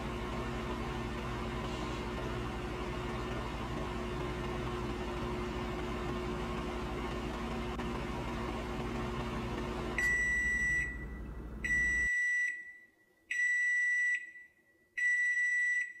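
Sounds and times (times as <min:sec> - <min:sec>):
microwave oven humming: 0:00.0 - 0:12.2
microwave high beeps: 0:09.9 - 0:16.0.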